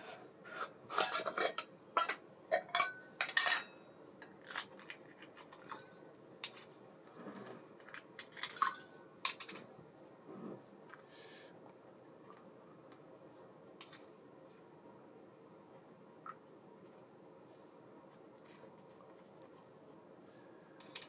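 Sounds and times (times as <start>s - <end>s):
small metal parts clinking: 7.8s - 9.6s.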